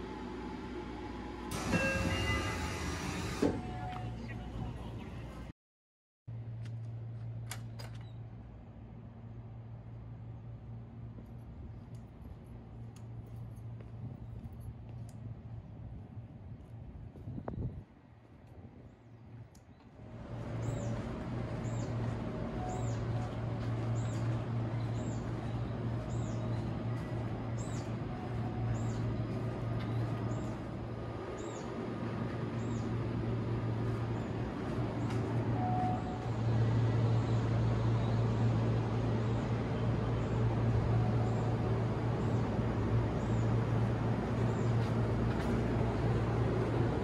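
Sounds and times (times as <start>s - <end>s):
electric train equipment humming: 0.0s - 5.5s, 20.0s - 47.0s.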